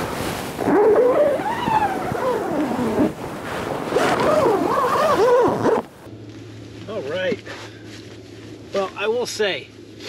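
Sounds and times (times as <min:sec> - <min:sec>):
wind-like noise: 0:00.0 - 0:06.1
animal howling: 0:00.6 - 0:03.1, 0:04.2 - 0:05.8.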